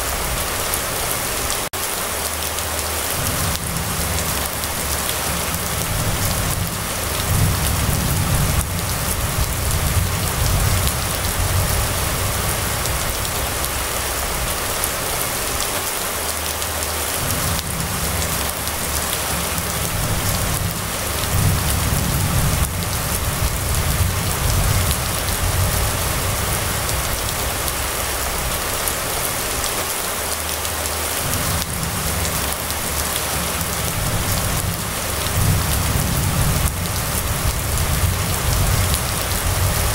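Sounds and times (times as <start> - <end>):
rain falling on a street: 0.0 - 39.9
low rumble: 3.1 - 15.0, 17.2 - 28.8.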